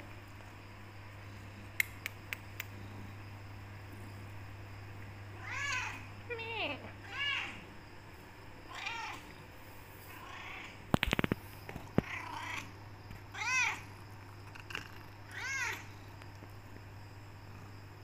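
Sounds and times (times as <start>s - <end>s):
cluster of sharp clicks: 1.8s - 2.8s, 10.9s - 12.1s
cat meowing: 8.7s - 9.2s, 13.3s - 13.8s.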